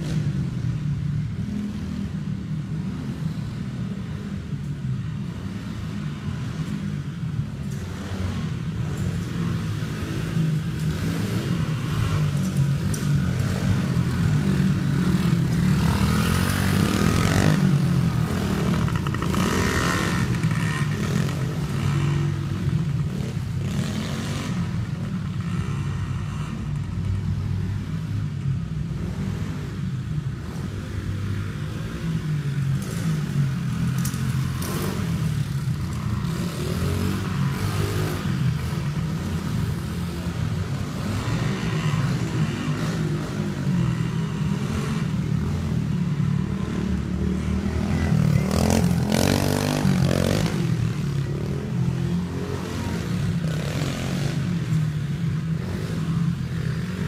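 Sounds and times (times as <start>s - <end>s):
dirt bike engine revving: 7.9s - 24.7s, 32.8s - 57.0s.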